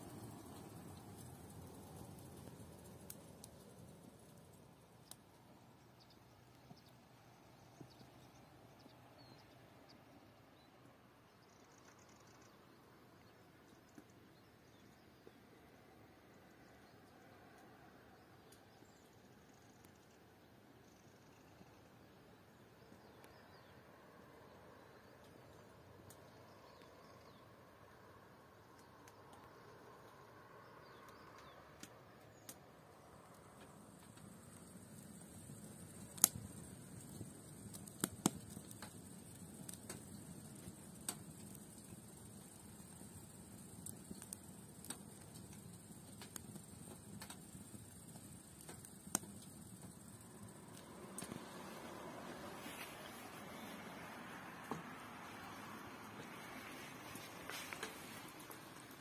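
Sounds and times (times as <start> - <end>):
faint outdoor ambience: 0.0 - 59.0
faint sharp clicks: 0.1 - 4.4, 5.0 - 5.4, 25.0 - 27.4, 30.8 - 51.8, 54.6 - 59.0
soft ticks: 33.2 - 51.5.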